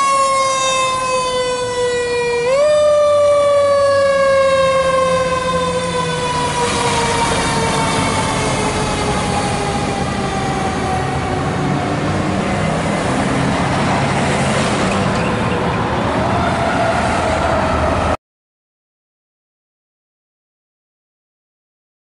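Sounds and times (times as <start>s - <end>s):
diesel engine drone: 0.0s - 18.2s
fire truck siren: 0.0s - 18.2s.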